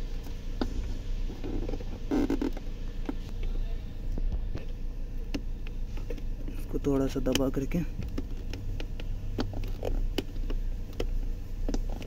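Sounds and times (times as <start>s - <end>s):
plastic connector clicking and scraping: 5.3s - 12.0s.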